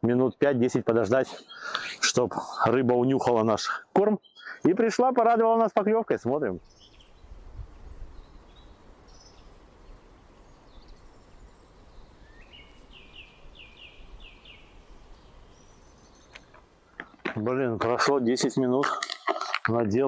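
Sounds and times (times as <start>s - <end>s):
songbirds chirping: 0.0s - 20.0s.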